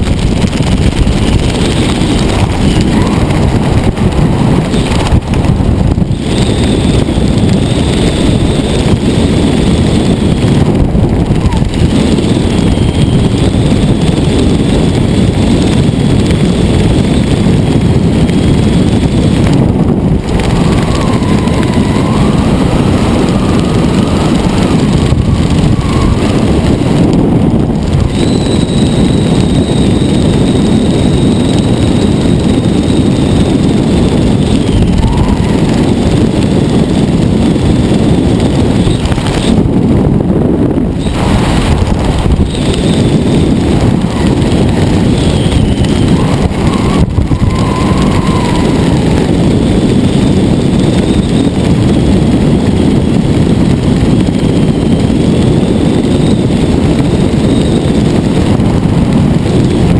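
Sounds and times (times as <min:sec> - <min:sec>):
wind buffeting microphone: 0:00.0 - 0:59.9
thin wavering whistle: 0:28.1 - 0:31.8.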